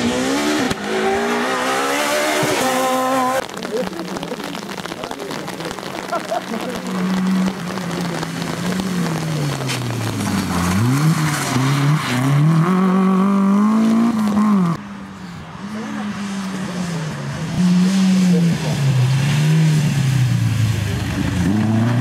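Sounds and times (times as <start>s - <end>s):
rally car engine revving: 0.0s - 14.8s, 15.6s - 22.0s
second rally car engine: 6.7s - 22.0s.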